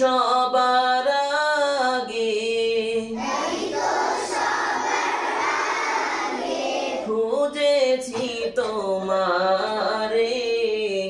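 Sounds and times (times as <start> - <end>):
crowd singing together: 3.1 - 7.3.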